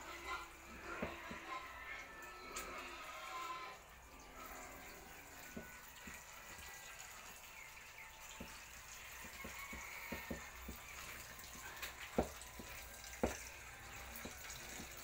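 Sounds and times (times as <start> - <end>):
hand working wet grain feed: 0.0 - 6.6
water trickling from faucet: 0.0 - 15.0.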